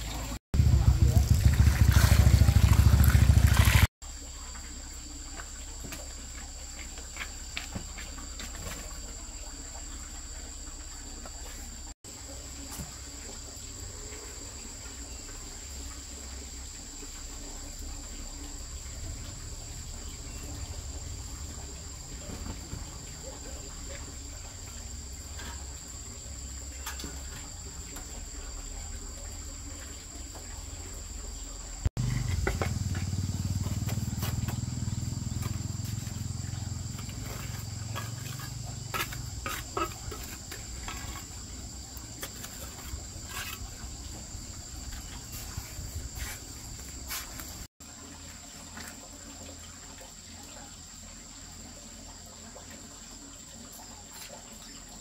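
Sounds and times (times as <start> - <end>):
insects chirring: 0.0 - 55.0
cement blocks knocking: 32.0 - 34.6, 37.0 - 41.3
trowel scraping on mortar: 37.2 - 41.4.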